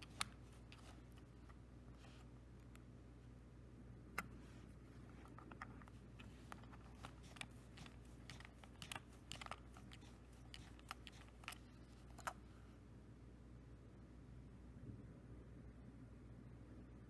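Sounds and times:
plastic cassette shell clicking: 0:00.0 - 0:01.6, 0:05.2 - 0:12.4.

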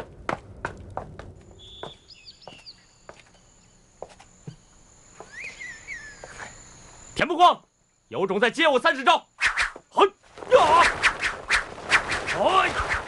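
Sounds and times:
footsteps on hard ground: 0:00.0 - 0:03.4, 0:04.0 - 0:05.4
high insect drone: 0:01.0 - 0:13.0
small birds chirping: 0:01.4 - 0:07.2.

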